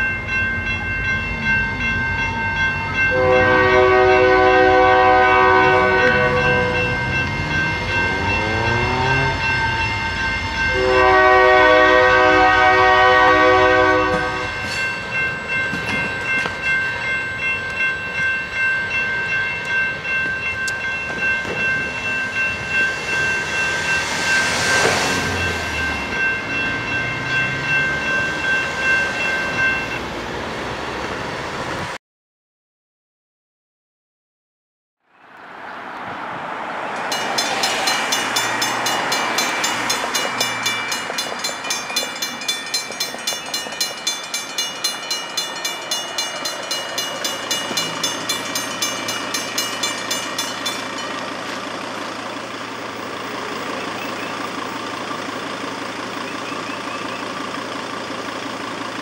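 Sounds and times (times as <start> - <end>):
railroad crossing bells ringing: 0.0 - 31.7, 36.2 - 59.0
train rumble: 0.0 - 32.0, 36.0 - 59.0
train air horn: 3.1 - 7.0, 10.7 - 14.7.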